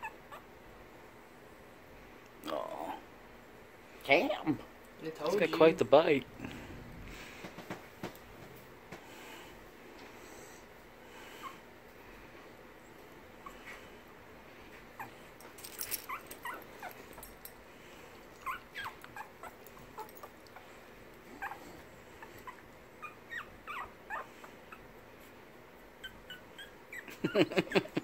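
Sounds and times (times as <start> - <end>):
puppy whimpering: 0.0 - 0.5, 15.0 - 15.2, 16.1 - 17.0, 18.4 - 20.4, 21.3 - 24.9, 26.0 - 27.9.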